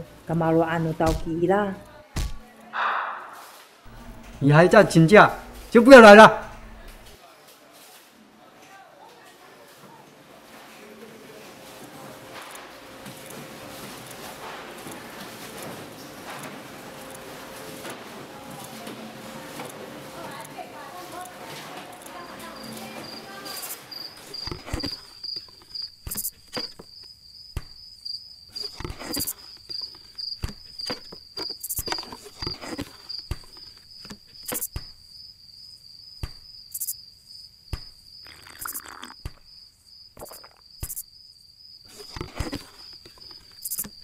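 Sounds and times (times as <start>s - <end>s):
cricket chirping: 22.1s - 44.0s.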